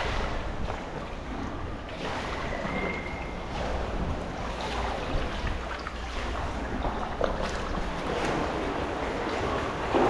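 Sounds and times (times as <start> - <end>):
sea water sloshing and lapping: 0.0 - 10.0.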